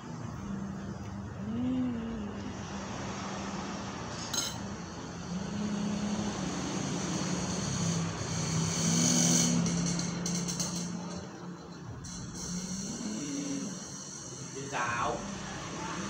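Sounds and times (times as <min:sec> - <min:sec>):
vehicle engine running: 0:00.0 - 0:12.6
cutlery clinking on a plate: 0:04.3 - 0:04.7.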